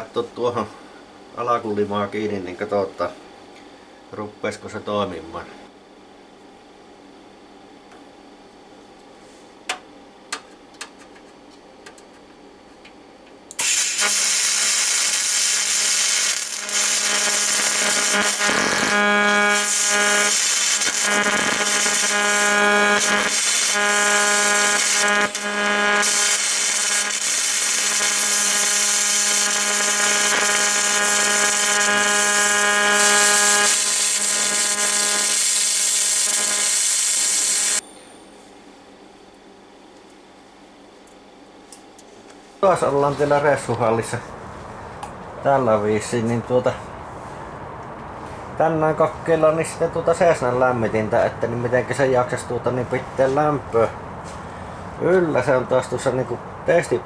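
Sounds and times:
welding arc buzzing and hissing: 0:13.5 - 0:37.8.

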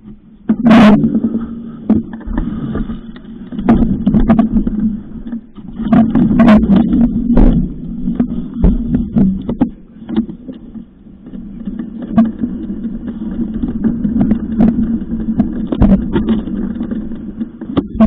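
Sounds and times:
bike knocks and rattles: 0:03.5 - 0:10.6, 0:11.6 - 0:18.0
bike rumble on dirt trail: 0:11.2 - 0:18.0.

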